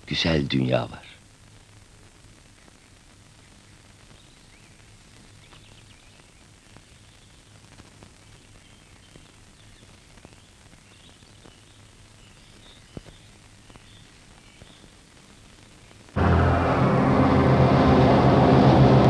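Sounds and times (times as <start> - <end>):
bird chirps: 8.3 - 14.9
steady low hum: 16.2 - 19.0.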